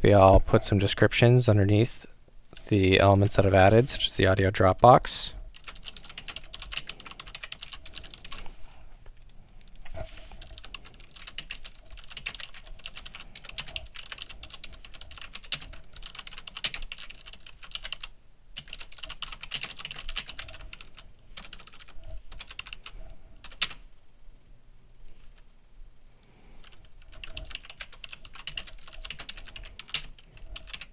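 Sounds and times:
typing on computer keyboard: 5.5 - 8.4, 10.4 - 23.8, 26.6 - 30.9.

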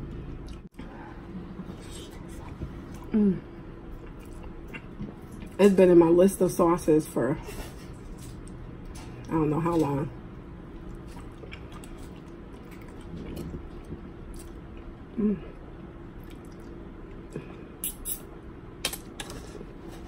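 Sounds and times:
chewing: 4.0 - 5.6, 10.8 - 14.9, 16.2 - 17.2.

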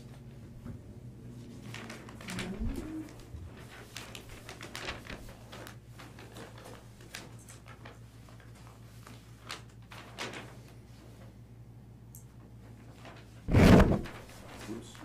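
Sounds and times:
steady low hum: 0.0 - 6.2
paper sheets rustling: 1.3 - 11.3, 12.6 - 15.0.

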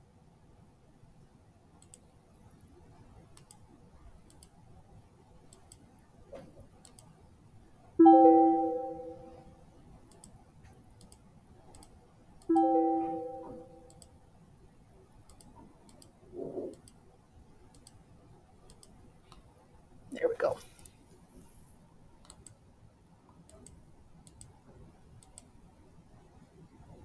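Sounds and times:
faint clicks: 1.8 - 2.1, 3.3 - 3.6, 4.2 - 4.6, 5.5 - 7.1, 10.1 - 12.5, 13.9 - 14.2, 15.2 - 17.0, 17.7 - 18.0, 18.7 - 19.5, 22.2 - 22.6, 23.3 - 24.6, 25.2 - 25.5
plucked chord-like chime: 8.0 - 9.4, 12.5 - 13.8.

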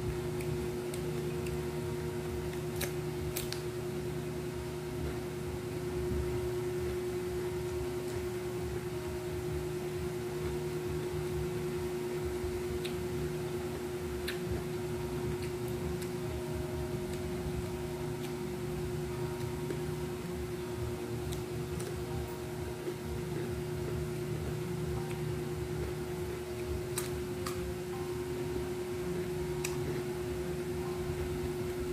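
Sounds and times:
steady tonal hum: 0.0 - 31.9
soft clicks from eating: 26.9 - 27.6.

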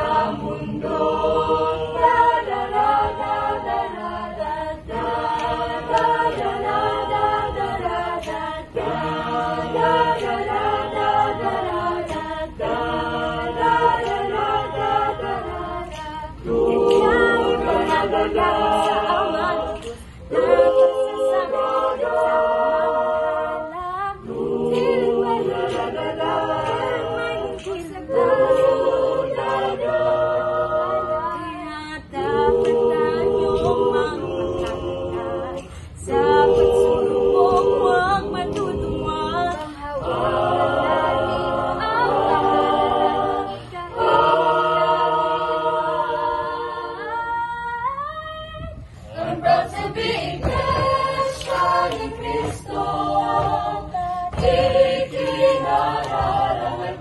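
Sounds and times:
choir singing a cappella: 0.0 - 57.0.

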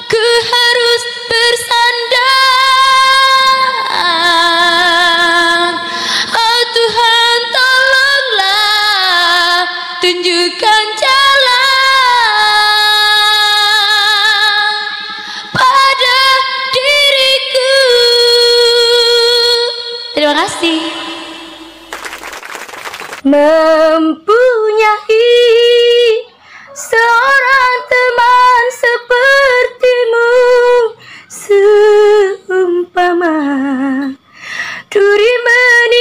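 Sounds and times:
woman singing: 0.0 - 21.7, 23.2 - 36.0.

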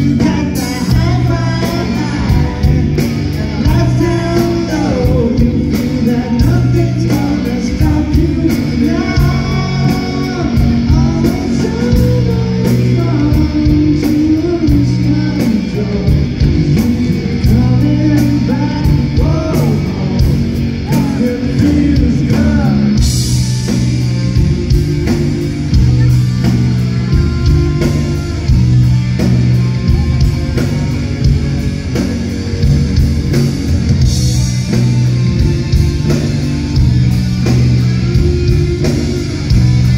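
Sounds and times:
lead vocal singing: 0.0 - 31.3
live rock band playing: 0.0 - 39.9.

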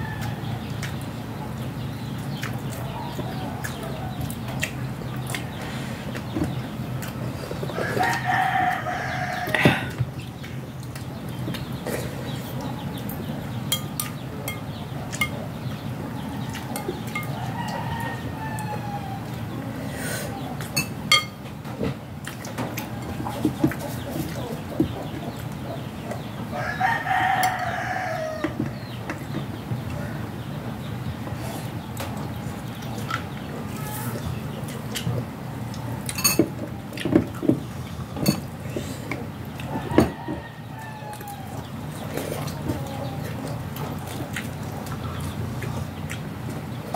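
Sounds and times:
rooster crowing: 0.0 - 0.6, 7.7 - 10.0, 17.2 - 19.3, 26.5 - 28.6, 39.7 - 41.6
cutlery clinking on plates: 13.7 - 15.4, 20.8 - 21.4, 36.1 - 37.2, 38.2 - 38.5
spoon clinking glass bowl: 20.8 - 21.4.

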